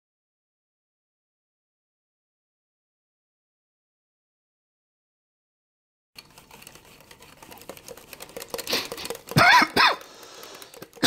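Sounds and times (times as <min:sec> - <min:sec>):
whisk clicking in glass bowl: 0:06.2 - 0:11.0.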